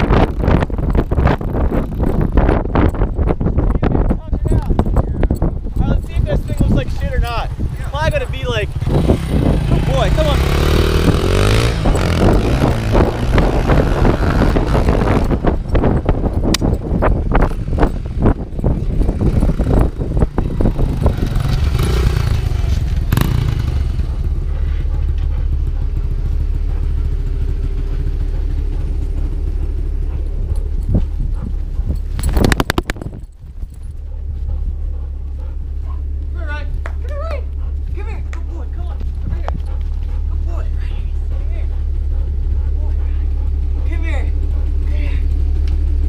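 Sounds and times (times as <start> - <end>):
dirt bike engine running: 0.0 - 46.0
low wind rumble: 0.0 - 46.0
knocks and clatter on gimbal: 29.0 - 34.0.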